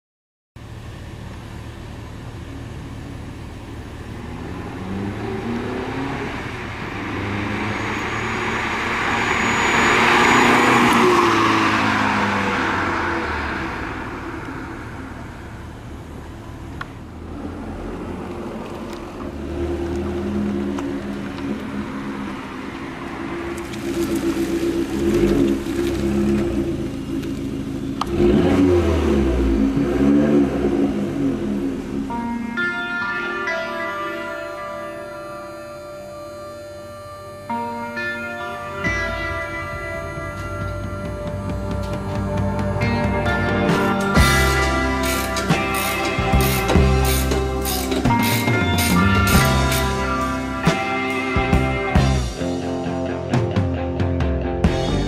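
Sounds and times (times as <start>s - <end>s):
car engine idling and revving: 0.6s - 55.0s
car accelerating past: 4.1s - 16.2s.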